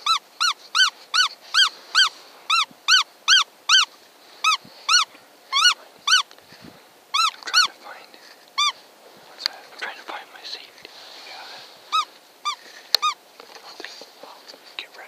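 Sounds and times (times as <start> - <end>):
high squeaks of predator call: 0.0 - 6.3, 7.1 - 7.8, 8.6 - 8.8, 11.9 - 13.2.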